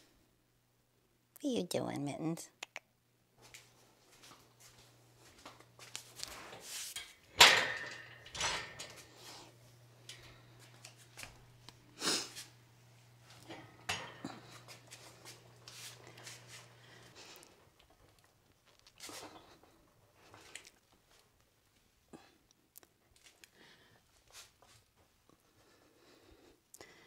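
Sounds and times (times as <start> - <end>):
barbell clanking in rack: 7.3 - 9.0.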